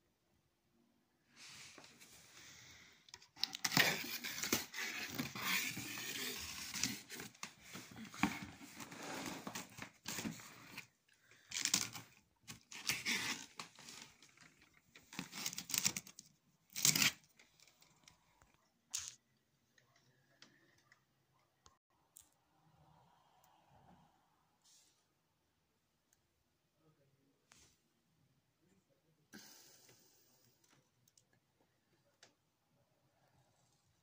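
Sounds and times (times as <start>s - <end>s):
cardboard rustling: 3.4s - 10.9s
packing tape ripping: 16.7s - 17.2s.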